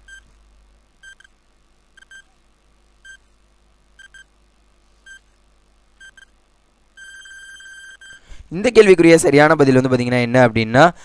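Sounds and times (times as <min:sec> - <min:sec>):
high-pitched electronic beeps: 0:07.0 - 0:08.2.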